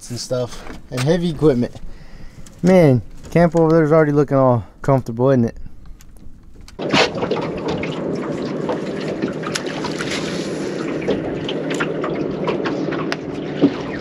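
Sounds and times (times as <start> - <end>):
water lapping against boat hull: 5.7 - 14.0.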